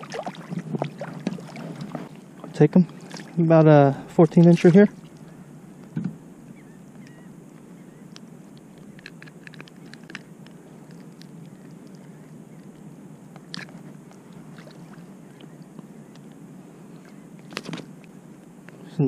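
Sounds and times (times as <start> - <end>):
lapping water: 0.0 - 3.4, 13.4 - 15.6.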